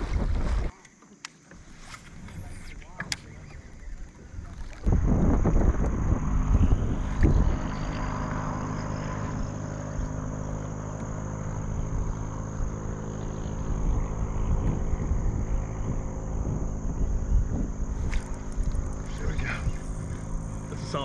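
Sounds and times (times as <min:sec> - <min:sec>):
wind on microphone: 0:00.0 - 0:00.7, 0:02.0 - 0:10.3, 0:11.5 - 0:21.0
steady mechanical hum: 0:01.6 - 0:21.0.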